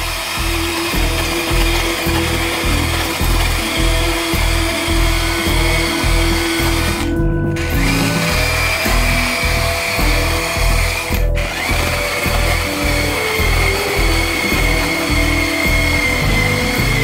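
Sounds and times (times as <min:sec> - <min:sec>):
background music with beat: 0:00.0 - 0:17.0
chainsaw cutting wood: 0:00.0 - 0:17.0.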